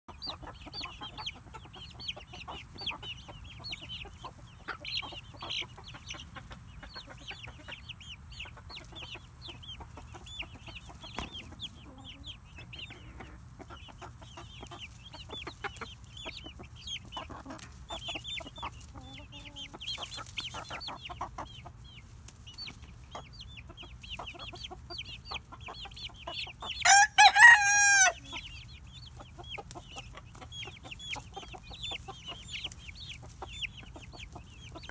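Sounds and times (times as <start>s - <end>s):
chicks peeping and clucking: 0.1s - 34.9s
rooster crowing: 26.8s - 28.3s.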